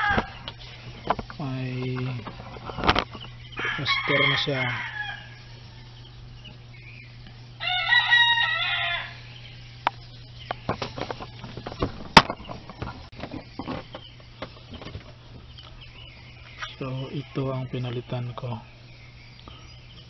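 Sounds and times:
rooster crowing: 0.0s - 0.5s, 3.4s - 6.2s, 7.6s - 9.5s
steady low hum: 0.0s - 20.0s.

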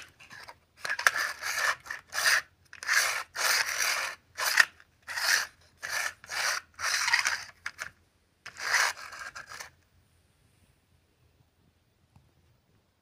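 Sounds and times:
toy car wheels rasping on floor: 0.0s - 9.8s.

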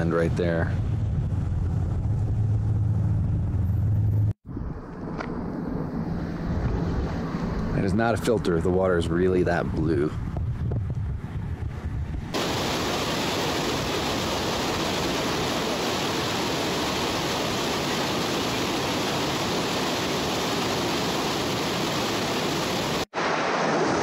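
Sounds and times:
river whitewater rushing: 12.4s - 24.0s.

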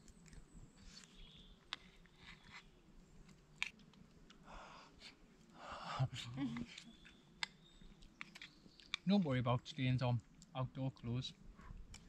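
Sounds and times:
faint chewing: 0.0s - 5.5s, 6.5s - 9.1s.

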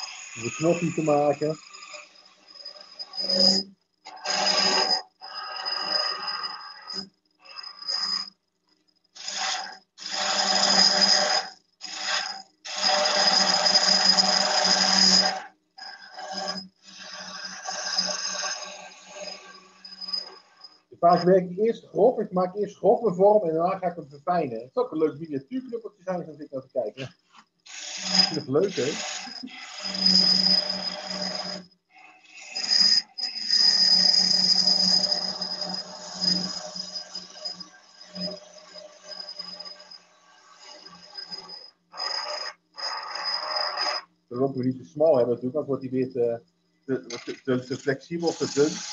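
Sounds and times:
gouge shaving spinning wood: 9.2s - 20.6s, 27.7s - 38.9s, 40.6s - 44.0s, 47.0s - 48.9s.

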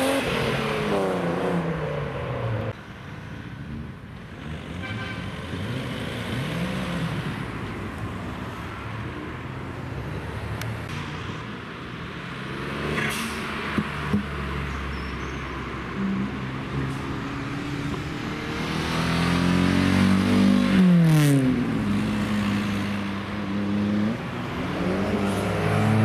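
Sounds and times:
engine and road noise: 0.0s - 26.0s.

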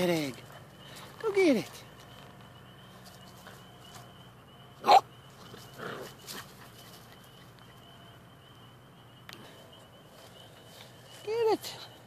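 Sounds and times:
small dog barking: 4.8s - 5.1s.

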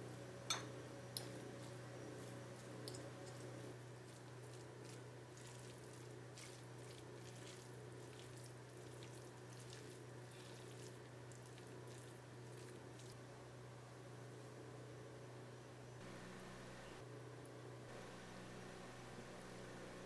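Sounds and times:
low steady hum: 0.0s - 20.0s
forks shredding wet meat: 1.6s - 13.2s.

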